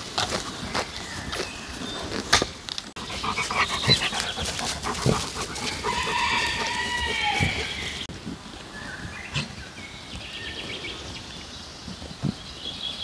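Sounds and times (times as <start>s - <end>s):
birds chirping: 0.0s - 13.0s
dog panting: 3.0s - 8.1s.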